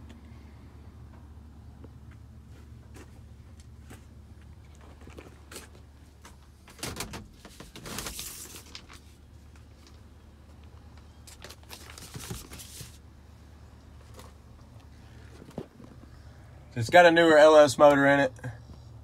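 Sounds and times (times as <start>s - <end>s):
low steady hum: 0.0s - 19.0s
knocks clicks and rustles in a cab: 1.0s - 13.0s, 13.8s - 16.2s.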